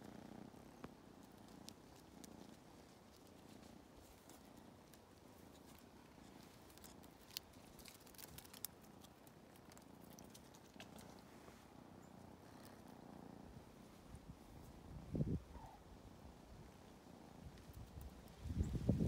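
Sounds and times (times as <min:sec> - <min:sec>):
kitten claws scratching tree bark: 0:01.2 - 0:11.3.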